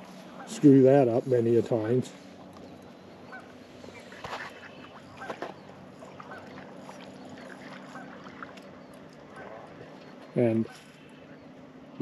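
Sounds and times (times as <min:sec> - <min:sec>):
distant geese honking: 0:00.0 - 0:12.0
fish splashing in water: 0:03.3 - 0:11.2.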